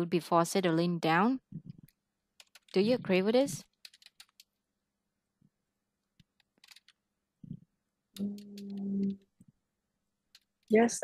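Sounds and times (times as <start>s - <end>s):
computer keyboard clicks: 2.4s - 2.8s, 3.7s - 4.5s, 6.2s - 7.0s, 10.3s - 10.7s
person humming: 8.2s - 9.3s.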